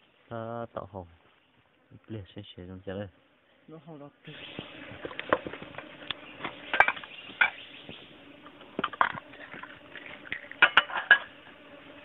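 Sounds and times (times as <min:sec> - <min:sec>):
metal pots clinking: 0:05.2 - 0:07.6, 0:08.8 - 0:11.4.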